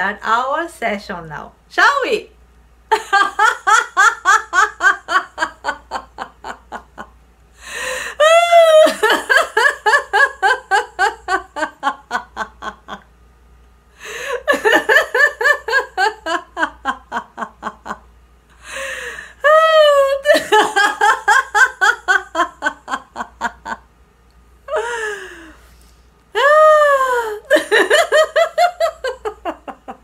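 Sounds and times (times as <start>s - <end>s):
woman laughing heartily: 2.9s - 13.1s, 14.0s - 18.0s, 18.6s - 23.8s, 24.7s - 25.6s, 26.4s - 30.0s
woman whooping: 26.4s - 27.4s.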